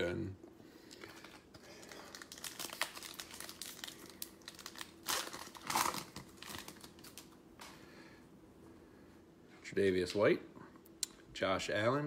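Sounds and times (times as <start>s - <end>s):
foil wrapper crinkling and tearing: 1.0s - 7.4s.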